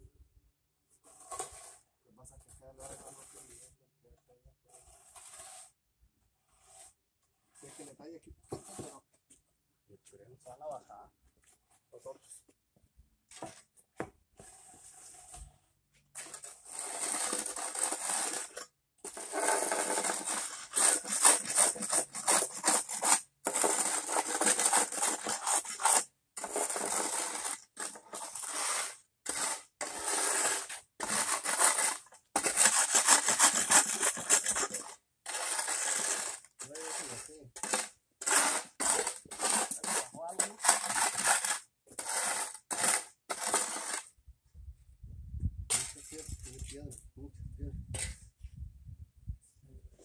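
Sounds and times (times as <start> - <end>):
shovel scraping sand on concrete: 0.9 - 3.8, 4.6 - 9.1, 14.3 - 44.2, 45.7 - 46.9.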